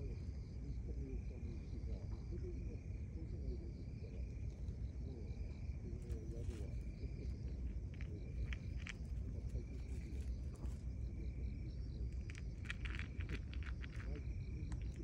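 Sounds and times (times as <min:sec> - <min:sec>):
low background rumble: 0:00.0 - 0:15.0
night insects trilling: 0:00.0 - 0:15.0
cat crunching dry kibble: 0:07.6 - 0:11.0, 0:12.0 - 0:15.0.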